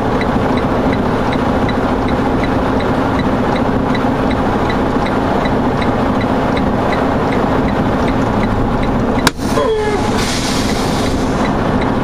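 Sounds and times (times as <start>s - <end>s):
diesel engine idling: 0.0s - 12.0s
light regular ticking: 0.1s - 9.3s.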